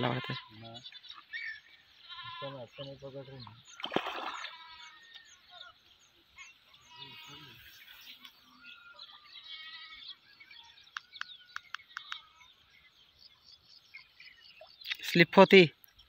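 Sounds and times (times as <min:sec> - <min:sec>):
birds chirping faintly: 0:00.0 - 0:16.0
sharp clicks: 0:10.9 - 0:12.2.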